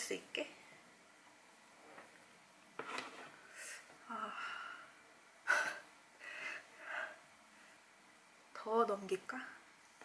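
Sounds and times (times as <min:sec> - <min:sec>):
woman breathing and gasping: 0:03.5 - 0:07.2.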